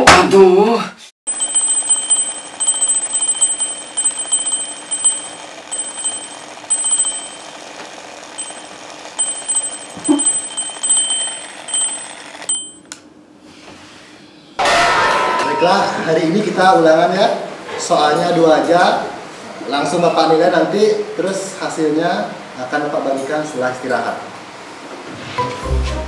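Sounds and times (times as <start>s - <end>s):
alarm clock ringing: 1.3s - 13.0s.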